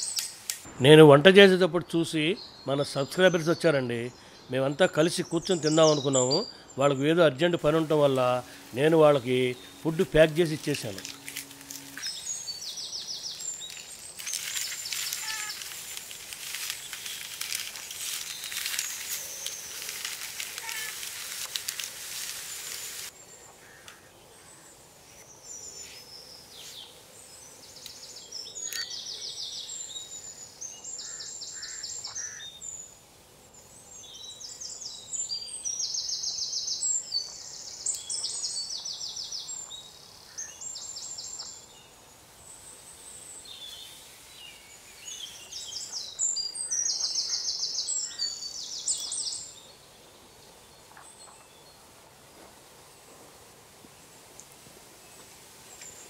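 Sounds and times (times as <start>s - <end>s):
songbird singing high trills: 2.3s - 16.0s, 33.9s - 41.9s, 43.4s - 49.8s
paper crinkling: 7.7s - 12.3s, 13.3s - 23.1s.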